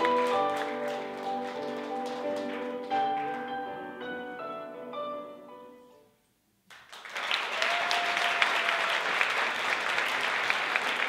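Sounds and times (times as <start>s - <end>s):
audience applause: 0.0s - 3.5s, 6.7s - 11.0s.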